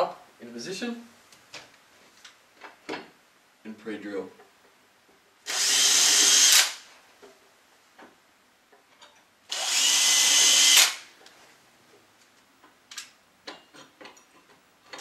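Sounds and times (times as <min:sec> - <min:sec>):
cordless drill drilling: 0:05.4 - 0:06.9, 0:09.5 - 0:11.1.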